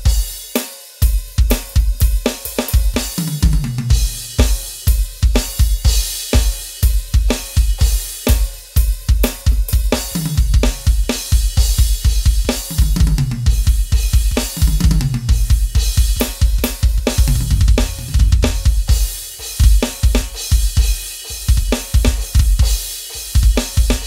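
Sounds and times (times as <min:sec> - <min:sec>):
electronic drum kit groove: 0:00.0 - 0:24.0
tom fills: 0:17.0 - 0:19.9.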